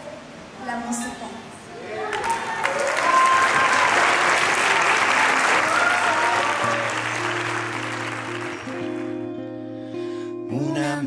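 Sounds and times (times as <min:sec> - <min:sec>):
audience applauding: 0:02.0 - 0:09.3
soft music with held notes: 0:06.6 - 0:11.0.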